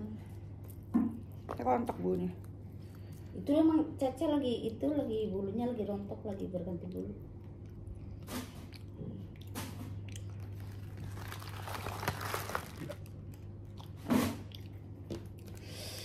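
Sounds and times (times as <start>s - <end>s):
chewing: 6.8s - 15.6s
paper wrapper crumpling: 10.4s - 13.5s.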